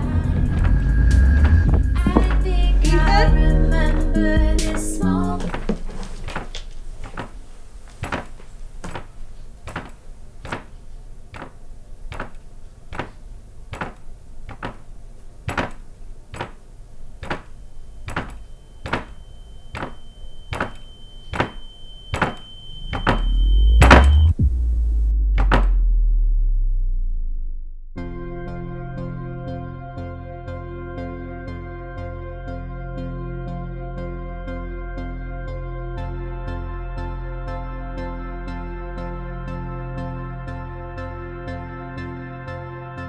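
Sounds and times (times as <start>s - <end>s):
low rumble: 0.0s - 5.6s, 23.2s - 28.6s
low drone: 0.0s - 5.7s
thin high ringing tone: 17.4s - 24.4s
loud hit: 23.8s - 26.8s.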